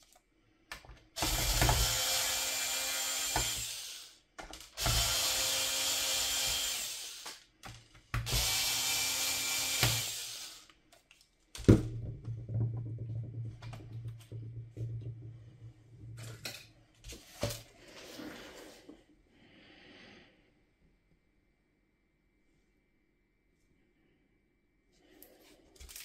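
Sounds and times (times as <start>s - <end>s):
electric screwdriver running: 1.2s - 4.2s, 4.8s - 7.4s, 8.3s - 10.7s.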